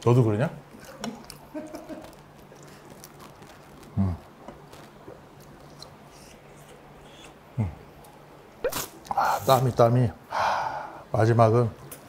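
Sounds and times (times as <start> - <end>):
man chewing with wet mouth clicks: 0.7 - 7.4.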